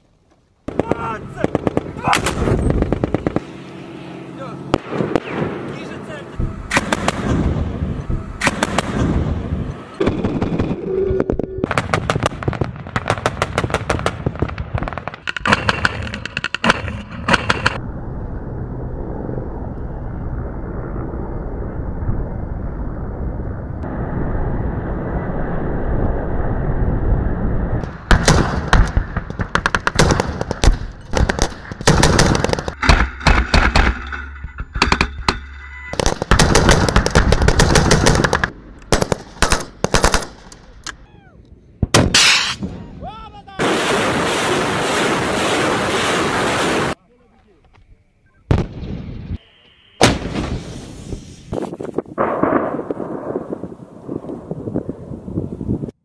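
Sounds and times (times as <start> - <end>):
automatic weapons fire: 6.7 - 7.6, 28.1 - 34.0, 36.0 - 40.5.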